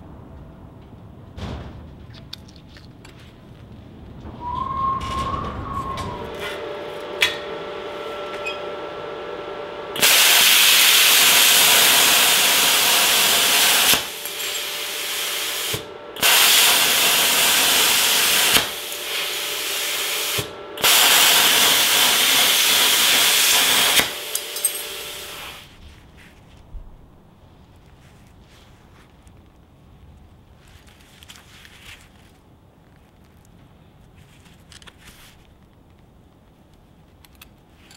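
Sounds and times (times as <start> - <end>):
plasma cutter hissing: 10.0 - 25.7
quiet air hiss: 24.6 - 37.9.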